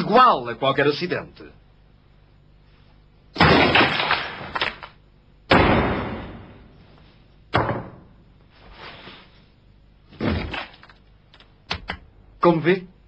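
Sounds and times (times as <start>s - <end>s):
sledgehammer smashing skull: 3.4s - 4.8s, 5.5s - 6.4s.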